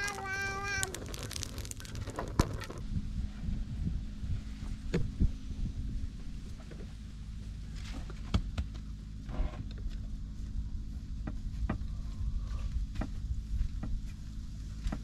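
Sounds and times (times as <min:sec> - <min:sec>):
wood fire crackling: 0:00.0 - 0:02.8
steady low hum: 0:00.0 - 0:15.0.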